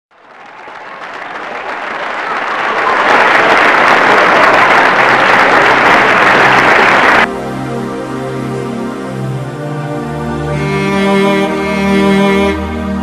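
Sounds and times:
applause: 0.1s - 7.3s.

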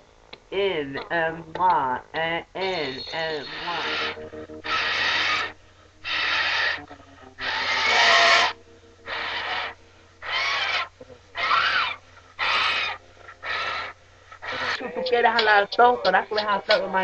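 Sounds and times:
thin wavering squeal: 2.7s - 15.1s.

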